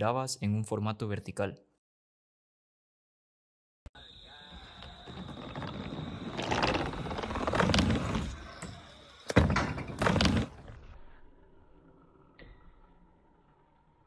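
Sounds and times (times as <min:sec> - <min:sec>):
scooter wheels rolling on wood: 0:04.0 - 0:10.9
scooter clattering on ramp: 0:04.8 - 0:10.6.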